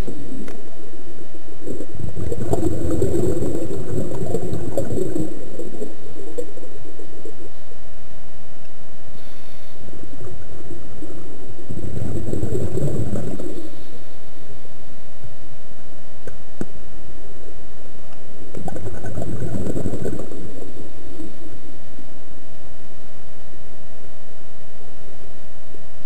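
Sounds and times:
gurgling exhaled bubbles underwater: 0:00.0 - 0:07.7, 0:09.5 - 0:14.2, 0:18.5 - 0:21.7
steady thin hum: 0:00.0 - 0:26.0.

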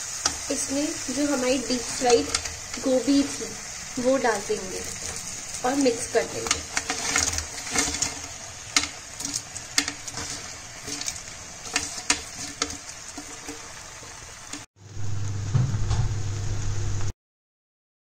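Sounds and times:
faint sizzle: 0:00.0 - 0:17.1
metal spoon scraping pan: 0:00.1 - 0:03.3, 0:04.8 - 0:14.6.

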